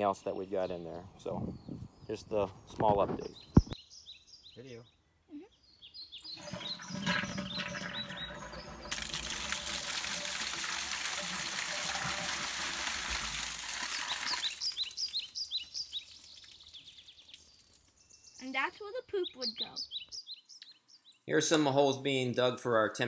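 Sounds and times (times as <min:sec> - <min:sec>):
birds chirping: 0:00.0 - 0:21.6
toilet flushing: 0:06.3 - 0:14.5
water pouring out of a pipe: 0:06.3 - 0:18.1.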